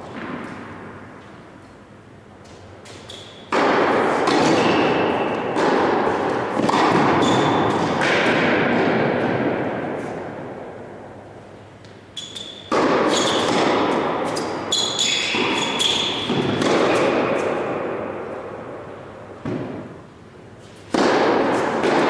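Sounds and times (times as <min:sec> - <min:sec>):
ball bouncing: 0:02.4 - 0:10.2, 0:12.6 - 0:17.6
tennis racket strikes: 0:02.4 - 0:10.8, 0:11.8 - 0:18.8, 0:19.4 - 0:22.0.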